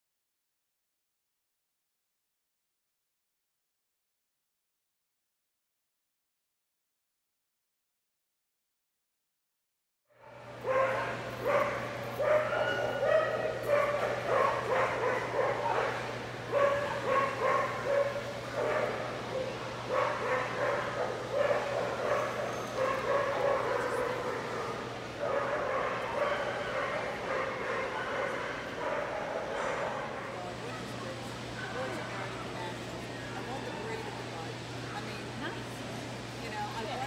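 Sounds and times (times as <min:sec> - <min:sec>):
dogs barking and yipping: 0:10.2 - 0:31.0.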